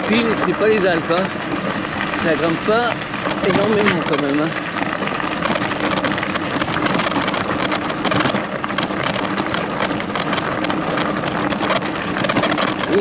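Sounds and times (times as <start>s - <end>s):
bicycle rattling: 0.0s - 13.0s
bicycle tyres crackling on gravel: 0.0s - 13.0s.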